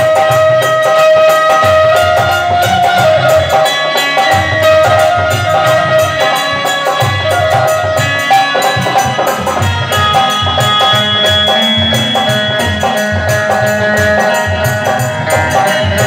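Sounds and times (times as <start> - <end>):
hand drum beats: 0.0 - 16.0
harmonium chords: 0.0 - 16.0
jingling hand cymbals: 0.0 - 16.0.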